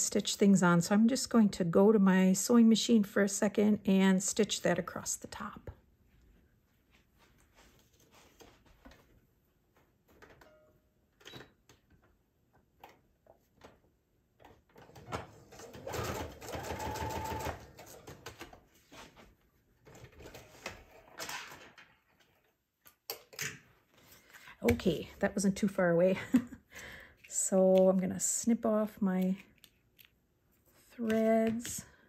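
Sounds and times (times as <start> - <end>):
sewing machine stitching: 14.8 - 18.4.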